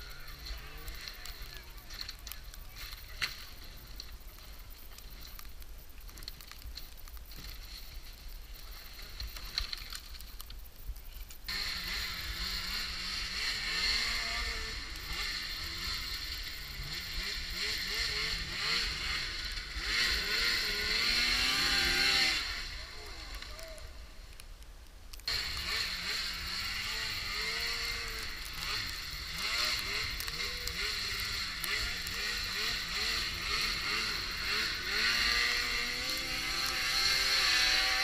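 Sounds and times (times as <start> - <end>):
snowmobile engine revving: 0.0 - 4.5, 11.5 - 24.0, 25.3 - 38.0.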